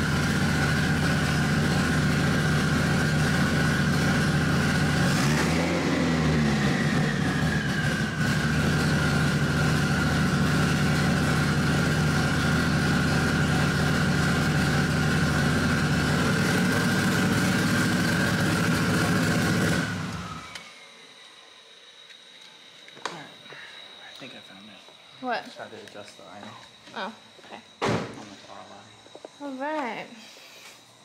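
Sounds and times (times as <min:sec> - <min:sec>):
car engine idling: 0:00.0 - 0:20.4
steady high whine: 0:00.0 - 0:31.0.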